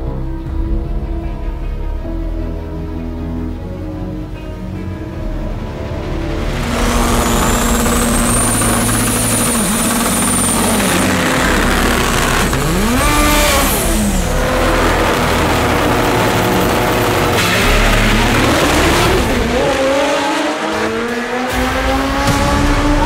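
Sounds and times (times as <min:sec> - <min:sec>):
high whine: 0:04.5 - 0:23.0
car engines revving: 0:04.6 - 0:23.0.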